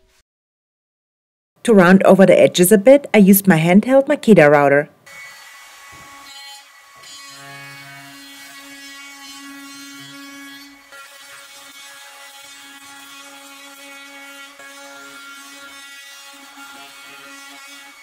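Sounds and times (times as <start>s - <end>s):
router whining cutting wood: 5.1s - 18.0s.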